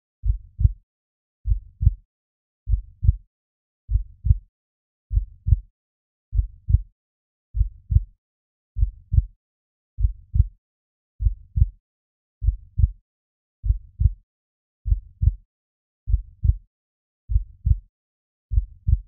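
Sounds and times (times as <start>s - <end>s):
slow heartbeat thumps: 0.2s - 0.8s, 1.4s - 2.0s, 2.7s - 3.2s, 7.6s - 8.1s, 13.6s - 14.2s, 14.8s - 15.4s, 16.1s - 16.6s, 17.3s - 17.8s, 18.5s - 19.0s.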